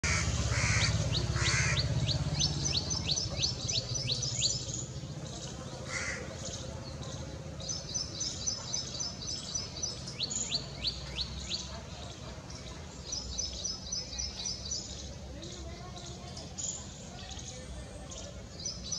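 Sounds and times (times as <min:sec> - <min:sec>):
coarse bird calls: 0:00.0 - 0:04.5
songbird singing whistled notes: 0:01.1 - 0:05.6.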